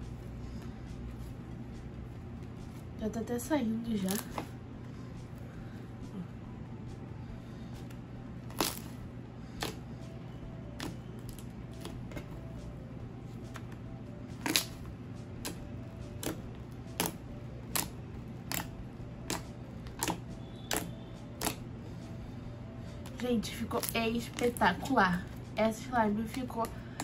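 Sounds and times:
steady low hum: 0:00.0 - 0:27.0
slime being stretched and pressed: 0:08.4 - 0:09.0, 0:14.4 - 0:14.8, 0:19.3 - 0:21.6
air pockets popping in slime: 0:08.5 - 0:09.0, 0:19.3 - 0:21.6.

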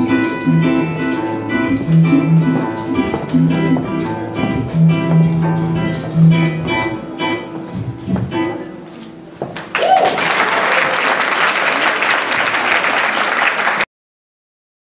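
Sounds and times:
audience applause: 0:09.6 - 0:13.9.

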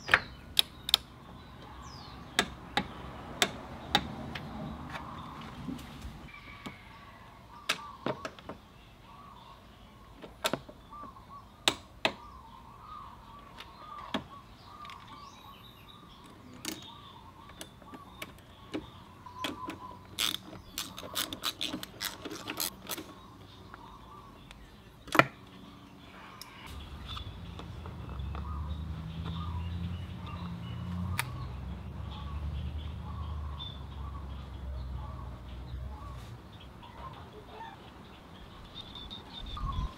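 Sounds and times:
socket wrench clicking: 0:19.5 - 0:23.0.

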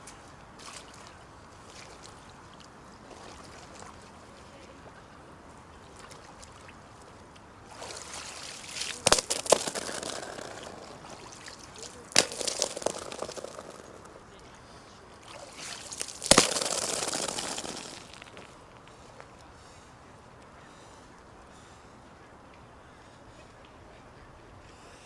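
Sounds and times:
icy water splashing: 0:00.6 - 0:04.6, 0:05.7 - 0:14.4, 0:15.1 - 0:18.6
ice knocking: 0:08.8 - 0:14.2, 0:15.6 - 0:18.5.

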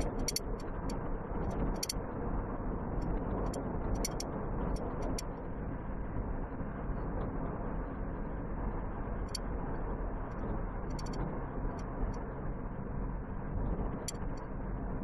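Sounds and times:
road and engine noise in a vehicle: 0:00.0 - 0:15.0
sharp clicks: 0:04.0 - 0:04.2.

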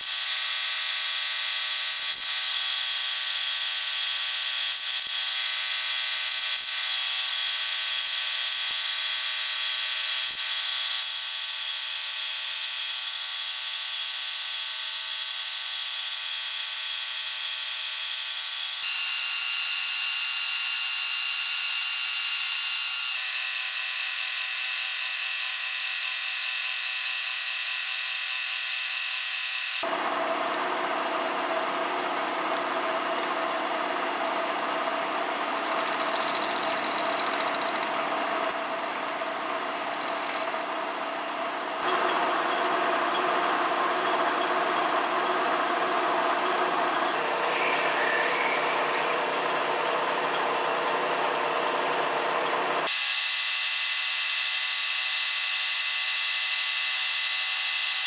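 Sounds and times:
milling machine cutting steel: 0:29.9 - 0:53.0.

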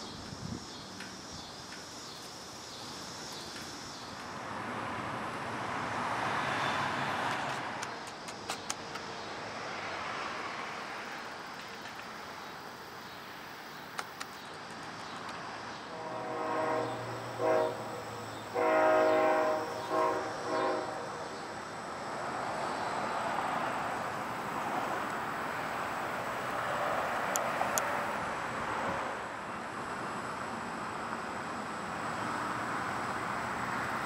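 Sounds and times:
train rumbling by: 0:00.0 - 0:13.4, 0:14.6 - 0:34.0
train horn blasts: 0:15.9 - 0:21.4.

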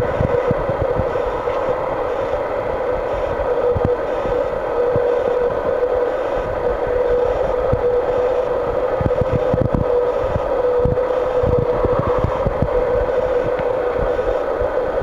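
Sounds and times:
held whine: 0:00.0 - 0:15.0.

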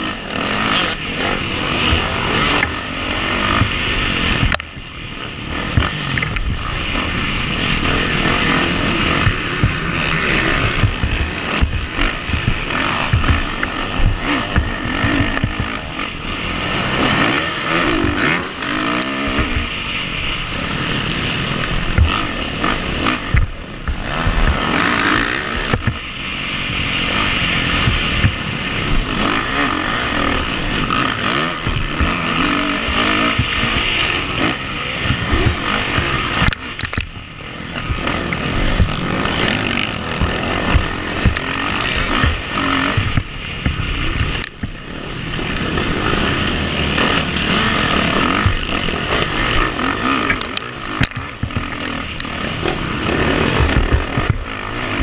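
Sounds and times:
motocross engine revving: 0:00.0 - 0:55.0.

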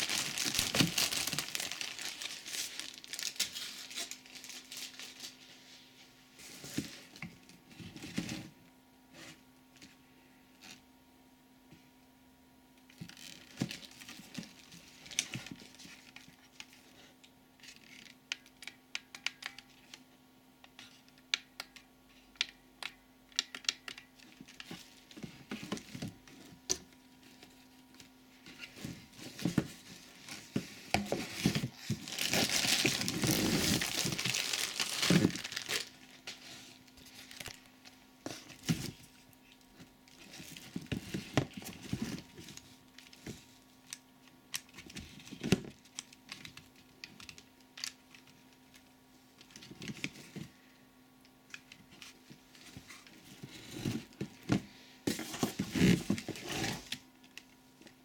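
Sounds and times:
packaging crinkling: 0:00.0 - 0:05.4, 0:31.3 - 0:37.7.

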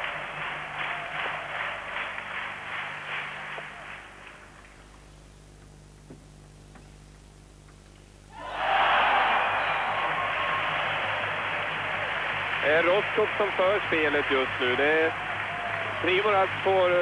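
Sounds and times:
crowd cheering: 0:00.0 - 0:04.4, 0:08.3 - 0:17.0
crowd applause: 0:00.0 - 0:04.7, 0:08.4 - 0:17.0.

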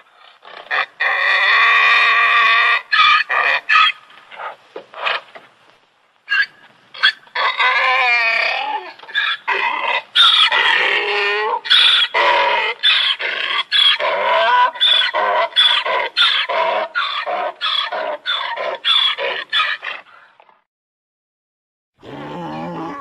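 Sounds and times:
donkey braying: 0:06.3 - 0:20.1, 0:22.0 - 0:23.0.

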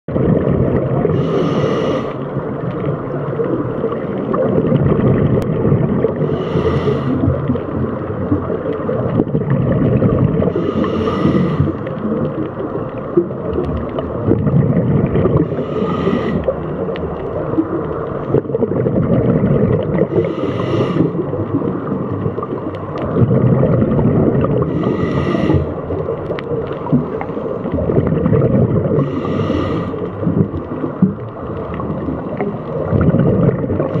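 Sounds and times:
underwater bubbling and rumbling: 0:00.0 - 0:34.0
diver inhaling through regulator: 0:01.0 - 0:02.3, 0:06.1 - 0:07.5, 0:10.4 - 0:11.9, 0:15.4 - 0:16.7, 0:20.0 - 0:21.4, 0:24.4 - 0:25.8, 0:28.9 - 0:30.2, 0:33.8 - 0:34.0.

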